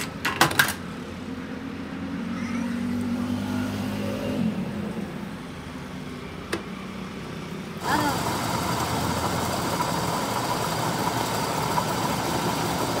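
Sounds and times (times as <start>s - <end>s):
workshop machinery humming: 6.2s - 13.0s.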